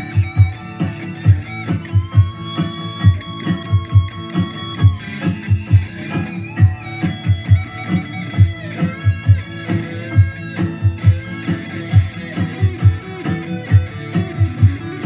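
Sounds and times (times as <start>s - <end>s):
electric guitar lead line: 0.0s - 15.0s
low thumping beat: 0.0s - 15.0s.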